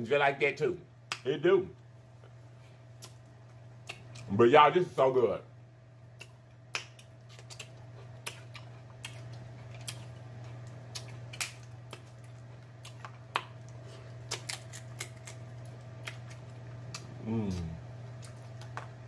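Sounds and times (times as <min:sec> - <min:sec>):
steady low hum: 0:00.0 - 0:19.0
lips smacking and chewing: 0:06.2 - 0:15.2
shellfish being peeled by hand: 0:06.2 - 0:16.4.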